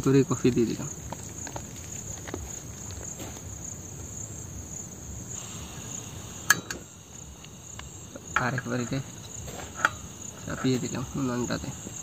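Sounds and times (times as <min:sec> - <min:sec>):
crickets trilling: 0:00.0 - 0:12.0
sharp click: 0:06.5 - 0:08.5.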